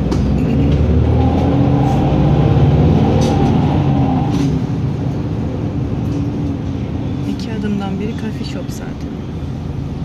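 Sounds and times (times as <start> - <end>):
bus engine: 0.0 - 10.0
road noise: 0.0 - 10.0.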